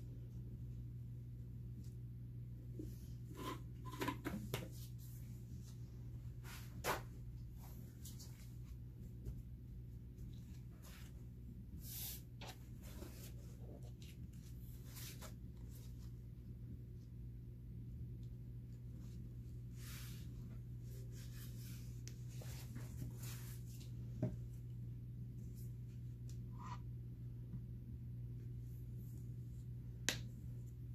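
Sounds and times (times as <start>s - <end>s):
steady low hum: 0.0s - 30.9s.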